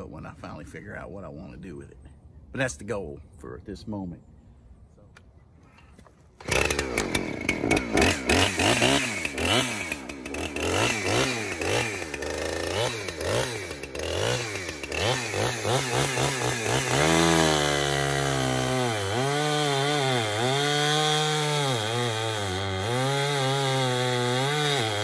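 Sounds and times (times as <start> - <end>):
chainsaw revving and cutting log: 6.4 - 25.0.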